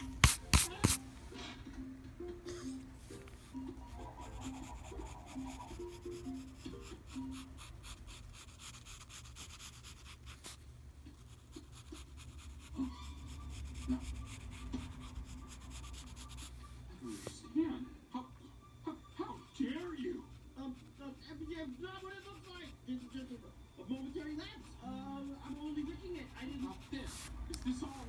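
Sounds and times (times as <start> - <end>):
pencil scratching on paper: 0.0 - 1.0, 3.4 - 17.3, 19.6 - 28.0
faint musical notes: 0.0 - 7.9.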